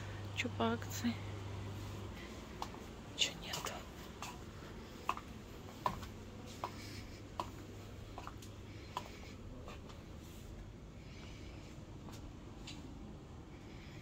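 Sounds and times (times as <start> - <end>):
faint low hum: 0.0 - 14.0
footsteps on tiled floor: 1.9 - 10.2.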